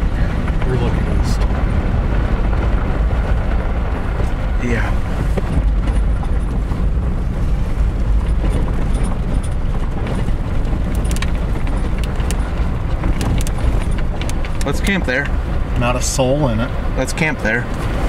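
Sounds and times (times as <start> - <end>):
engine and tyre rumble: 0.0 - 18.0
light clicks and rattles: 2.5 - 15.6.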